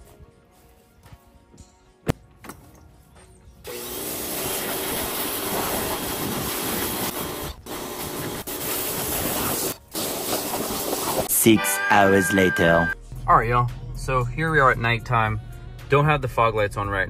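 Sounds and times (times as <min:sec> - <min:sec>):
pressure washer spraying water: 0:03.7 - 0:11.3.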